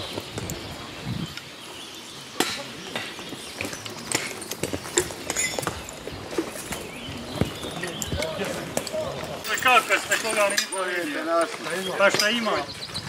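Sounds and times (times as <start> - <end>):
horse hooves knocking: 2.4 - 10.8
harness chains clinking: 3.6 - 6.8, 7.6 - 12.6.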